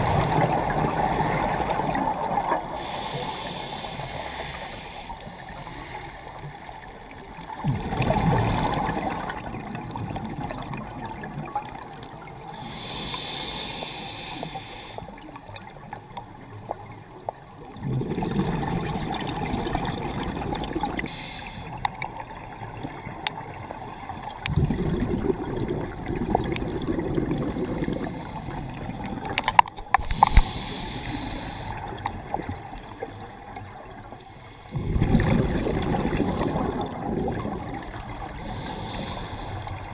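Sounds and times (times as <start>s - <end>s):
exhaled bubbles gurgling: 0.0s - 39.9s
regulator inhalation hiss: 2.8s - 6.0s, 12.6s - 15.1s, 21.1s - 21.8s, 29.9s - 31.9s, 38.4s - 39.9s.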